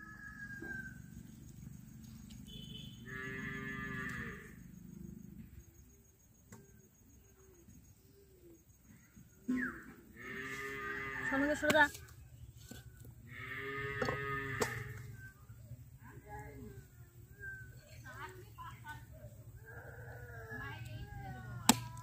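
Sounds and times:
cow mooing: 3.1 - 4.6, 10.2 - 11.5, 13.3 - 15.0.

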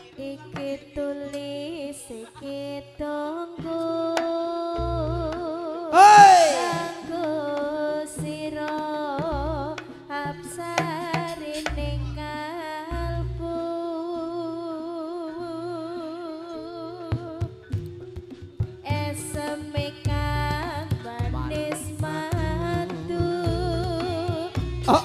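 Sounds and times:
loud cry with falling pitch: 6.0 - 7.2
deep drum beats: 6.0 - 8.4, 18.7 - 25.0.

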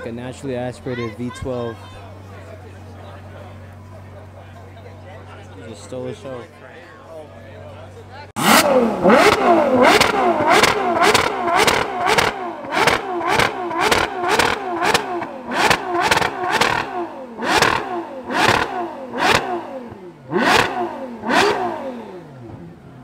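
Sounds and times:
car engine revving: 8.3 - 23.0.

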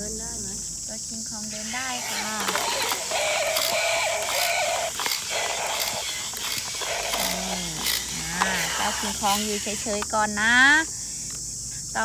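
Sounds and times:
electronic toy roar: 1.5 - 9.9
plastic gearbox clicking: 1.9 - 10.1.

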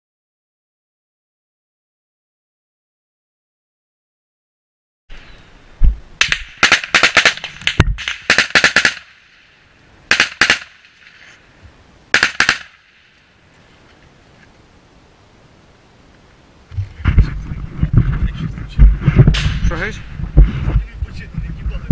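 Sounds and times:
gunfire: 6.2 - 11.2, 12.1 - 13.1, 19.2 - 20.1
heavy low thumps: 16.7 - 21.9.

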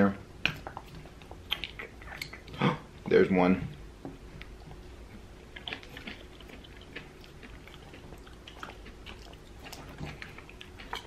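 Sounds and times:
wet mouth clicks: 0.4 - 2.6
chewing salad crunches: 5.4 - 11.0.

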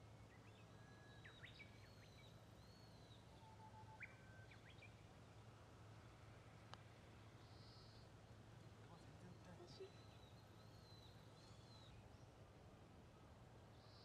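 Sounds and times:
faint birds chirping: 7.4 - 12.4.

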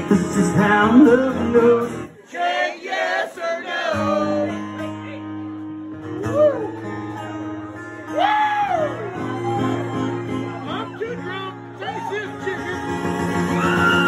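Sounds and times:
man singing: 0.0 - 2.2, 3.9 - 5.1
acoustic guitar: 0.0 - 2.3, 3.1 - 14.0.

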